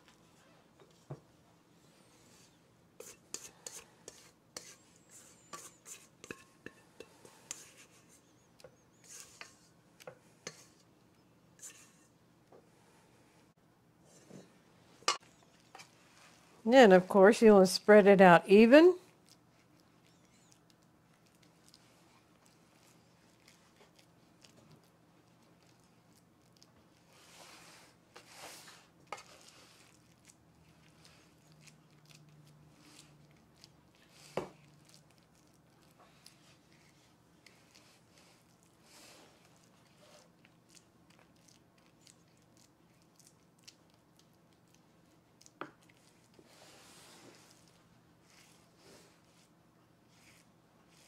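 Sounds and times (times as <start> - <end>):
low room hum: 0.0 - 51.0
wooden spoon tapping and scraping pan: 3.0 - 7.8.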